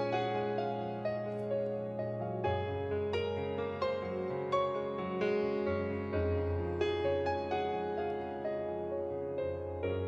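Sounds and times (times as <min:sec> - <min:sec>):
keyboard melody: 0:00.0 - 0:10.0.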